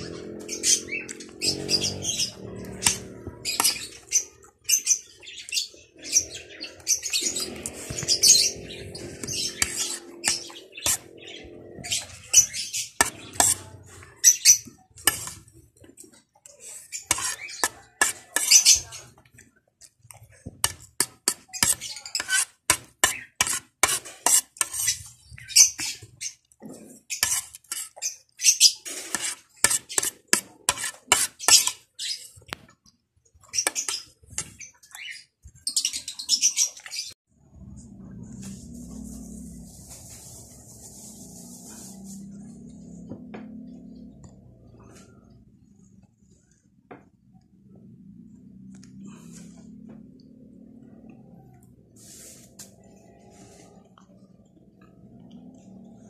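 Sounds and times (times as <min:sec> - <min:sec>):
low hum: 0:37.3 - 0:46.4.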